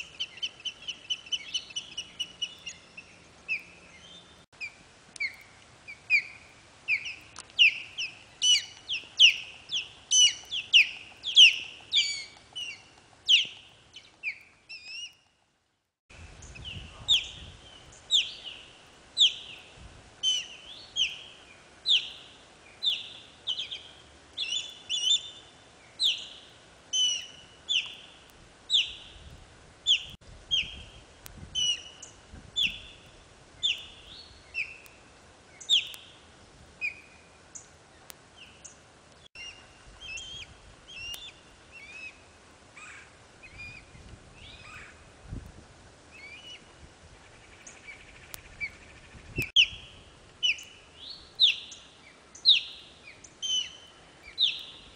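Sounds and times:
osprey whistled chirps: 0:21.9 - 0:28.1, 0:39.3 - 0:42.2, 0:47.6 - 0:51.8, 0:52.4 - 0:54.9.

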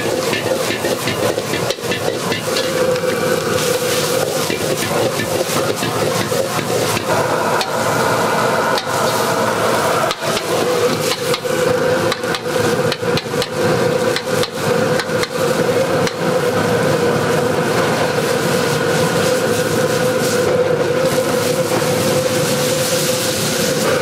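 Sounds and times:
ladle clanking against a wok: 0:00.0 - 0:07.8
gas burner roaring: 0:00.0 - 0:24.0.

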